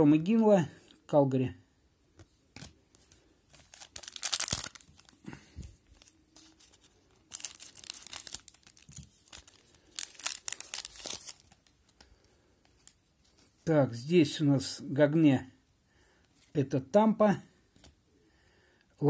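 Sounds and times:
foil wrapper crinkling: 3.5 - 5.3, 5.9 - 12.0.

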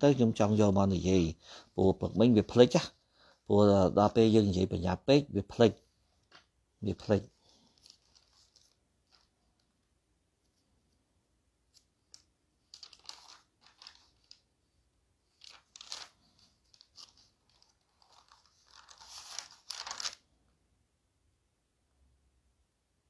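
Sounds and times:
rustling and crackling: 6.2 - 9.8, 11.7 - 14.7, 15.3 - 20.2.

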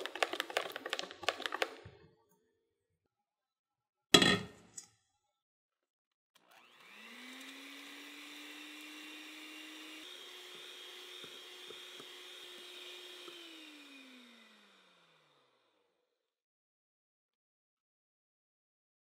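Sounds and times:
light ticks of mixer beaters: 6.4 - 13.9
electric hand mixer whirring: 6.4 - 16.0.

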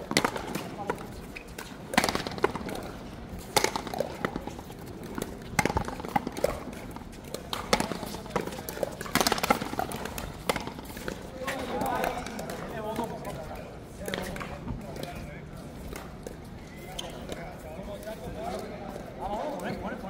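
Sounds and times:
ball knocking off paddles and wall: 0.0 - 13.0.

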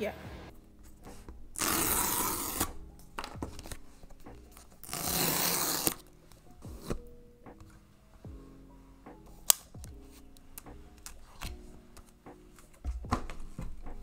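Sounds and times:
paper seal tearing: 1.5 - 2.8, 4.8 - 6.1.

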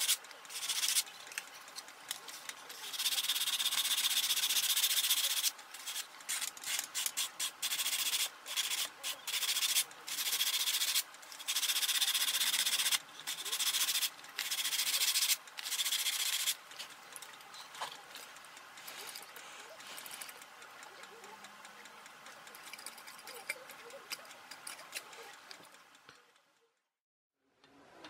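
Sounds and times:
sandpaper rubbing on foam: 0.0 - 1.0, 2.7 - 16.6.

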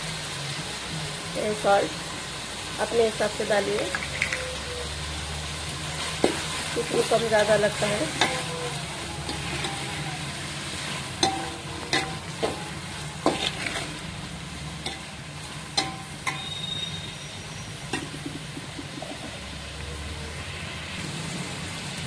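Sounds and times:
vegetables sizzling in a pot: 0.0 - 22.0
metal spatula scraping a pot: 6.0 - 14.1, 14.8 - 19.4.

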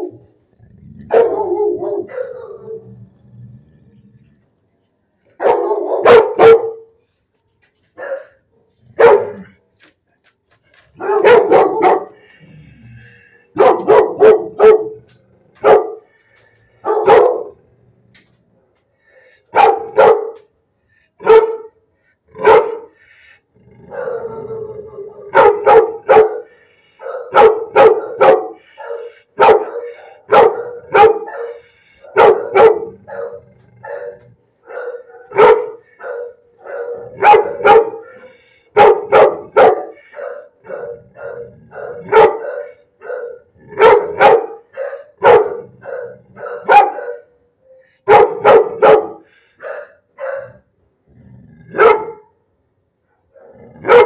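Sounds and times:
dog barking: 1.1 - 2.8, 5.4 - 7.0, 8.0 - 9.5, 11.0 - 12.2, 13.5 - 15.0, 15.6 - 16.1, 16.8 - 17.6, 19.5 - 20.5, 21.2 - 21.8, 22.4 - 23.0, 23.9 - 47.4, 48.0 - 50.7, 51.7 - 52.4, 53.2 - 54.0.

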